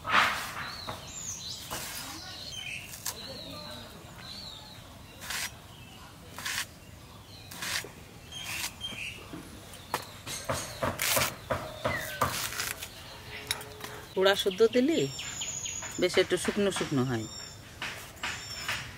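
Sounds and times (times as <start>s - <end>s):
small birds chirping: 0.4s - 18.9s
blade slicing plant stem: 2.8s - 3.3s, 5.2s - 5.5s, 6.4s - 6.7s, 7.5s - 8.8s, 11.0s - 11.4s.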